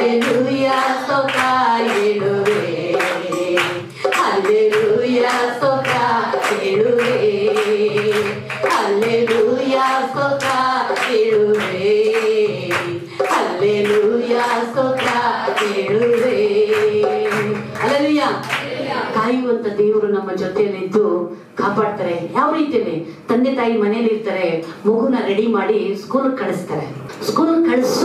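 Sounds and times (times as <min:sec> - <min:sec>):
hands clapping a steady beat: 0:00.0 - 0:19.1.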